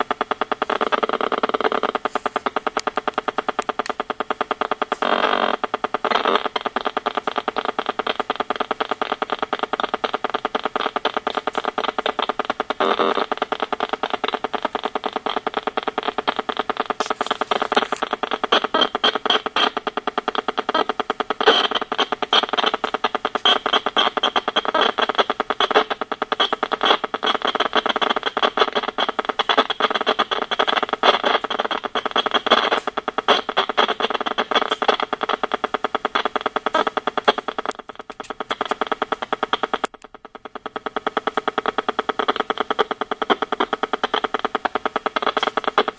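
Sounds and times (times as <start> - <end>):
rapid clicking buzz: 0.0 - 45.9
louder clicking bursts: 31.4 - 45.9.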